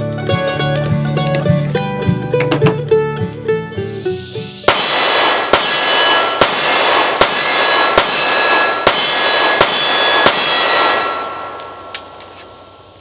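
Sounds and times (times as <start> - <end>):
pistol shots: 4.7 - 12.8
ringing after gunshots: 4.7 - 13.0.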